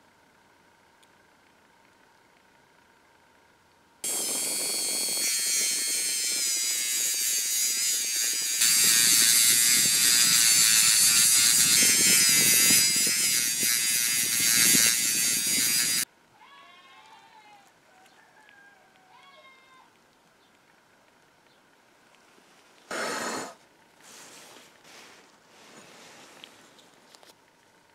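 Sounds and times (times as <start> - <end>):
rotary tool grinding metal: 4.0 - 16.1.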